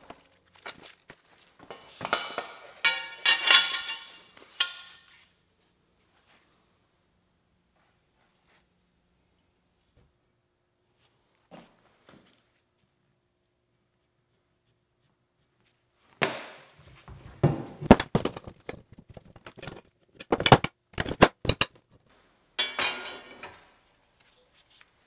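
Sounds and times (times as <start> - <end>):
steel bar clanking: 2.2 - 5.1, 22.6 - 23.8
metal scraping: 22.6 - 23.8.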